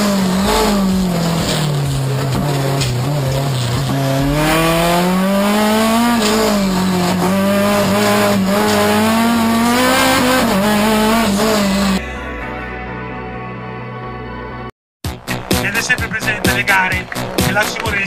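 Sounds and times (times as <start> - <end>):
race car engine revving: 0.0 - 12.0.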